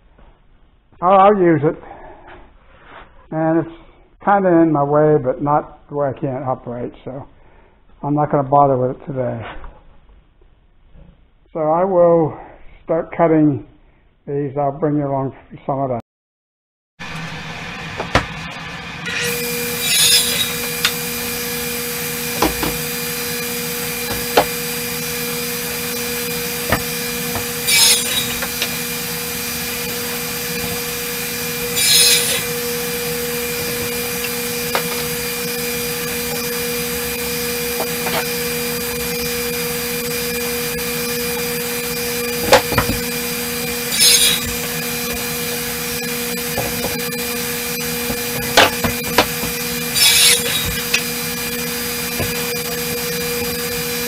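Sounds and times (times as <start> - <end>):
radial arm saw humming: 17.0 - 54.0
saw blade cutting boards: 17.0 - 54.0
wooden boards knocking: 42.4 - 43.0, 48.4 - 49.5.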